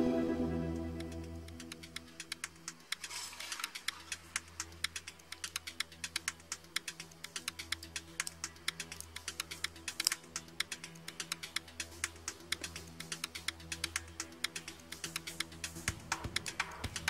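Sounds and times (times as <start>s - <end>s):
soft background music: 0.0s - 17.0s.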